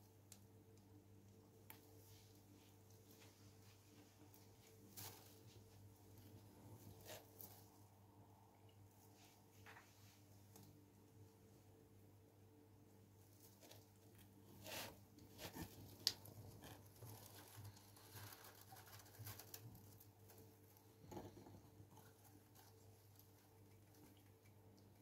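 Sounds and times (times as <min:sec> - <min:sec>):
low steady hum: 0:00.0 - 0:25.0
hamster rustling in hay: 0:01.9 - 0:07.8, 0:13.2 - 0:21.0.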